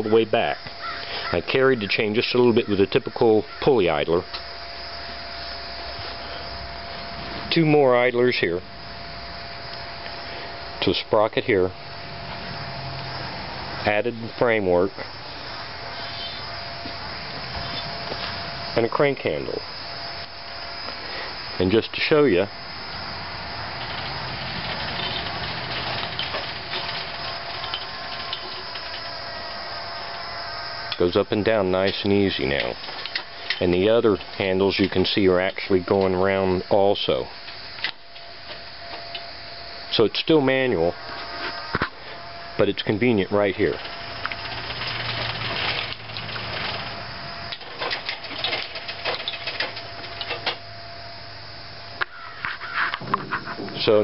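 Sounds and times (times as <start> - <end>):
steady mechanical hum: 0.0 - 54.0
roller chain running over sprockets: 23.6 - 29.2, 43.5 - 50.4.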